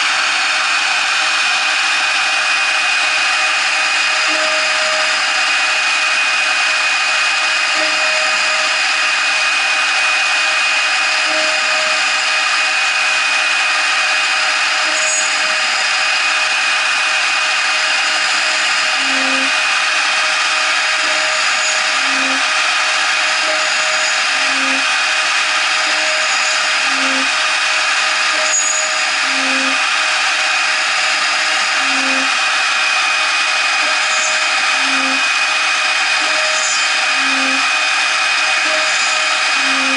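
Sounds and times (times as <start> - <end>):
router spindle high whine: 0.0 - 39.9
short low machine tones: 33.8 - 39.9.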